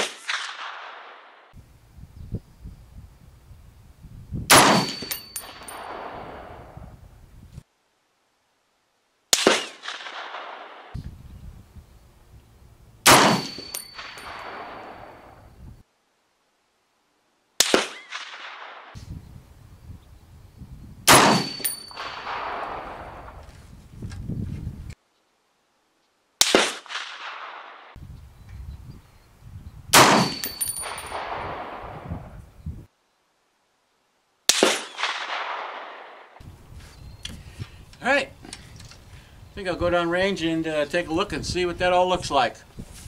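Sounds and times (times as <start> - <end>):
rifle shots with echo: 0.0 - 1.5, 4.5 - 6.8, 9.3 - 11.0, 13.1 - 15.3, 17.6 - 19.0, 21.1 - 23.4, 26.4 - 28.0, 29.9 - 31.9, 34.5 - 36.4
high metallic ring: 4.8 - 5.9, 13.3 - 14.6, 21.3 - 22.2, 30.2 - 31.2.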